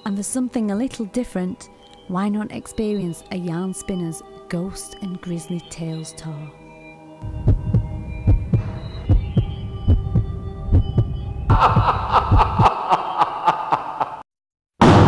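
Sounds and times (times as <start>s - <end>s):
eerie music of held tones: 1.6s - 13.2s
heartbeat thumps: 7.2s - 12.7s.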